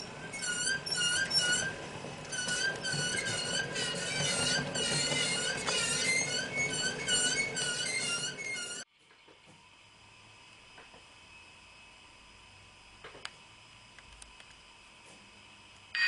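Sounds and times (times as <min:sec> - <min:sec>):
model overhead wire squeaking: 0:00.3 - 0:08.8.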